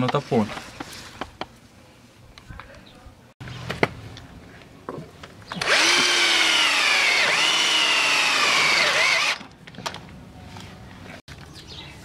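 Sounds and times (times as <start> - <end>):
electric drill whining: 5.6 - 9.5.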